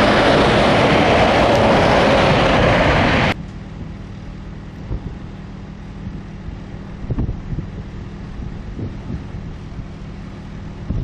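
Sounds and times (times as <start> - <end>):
road noise rushing: 0.0 - 3.4
loud truck engine: 0.0 - 7.1
quiet steady engine hum: 0.0 - 11.0.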